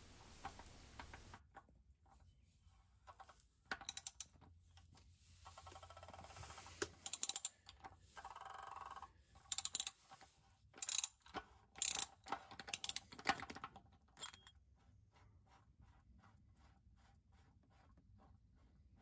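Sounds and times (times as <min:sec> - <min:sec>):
ratchet clicking: 0:03.8 - 0:04.3, 0:07.0 - 0:10.0, 0:10.8 - 0:13.2.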